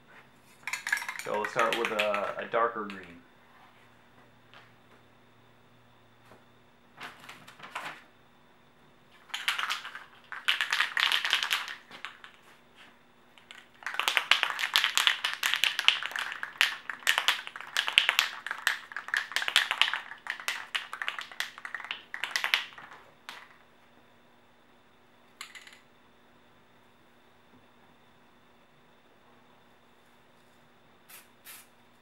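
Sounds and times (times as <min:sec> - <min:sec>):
spray can ball rattling: 0:00.6 - 0:03.2, 0:09.2 - 0:12.4, 0:13.4 - 0:23.6, 0:31.1 - 0:31.7.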